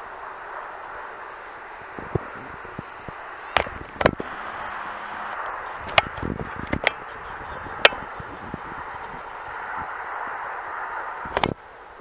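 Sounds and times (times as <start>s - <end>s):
distant jet hiss: 0.0s - 12.0s
brief high hiss: 4.2s - 5.5s.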